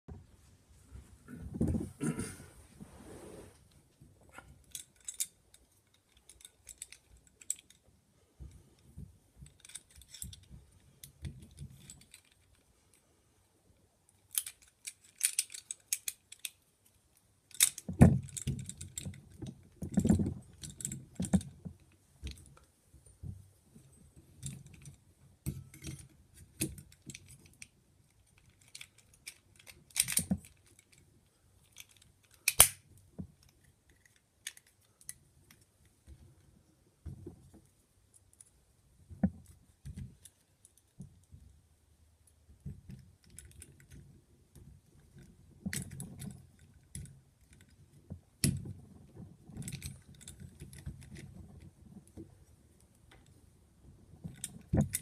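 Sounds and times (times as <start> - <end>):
small metal parts clicking: 4.6 - 7.8, 9.4 - 12.6, 14.1 - 21.5, 24.4 - 32.8, 33.4 - 35.6.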